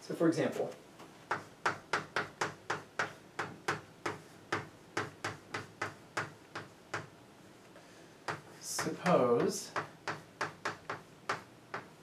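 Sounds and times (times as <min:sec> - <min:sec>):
chalk tapping on blackboard: 0:01.3 - 0:07.1, 0:08.2 - 0:12.0.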